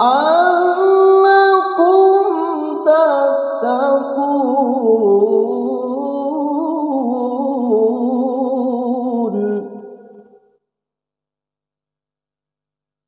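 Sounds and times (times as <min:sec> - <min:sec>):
man reciting melodically: 0:00.0 - 0:10.1.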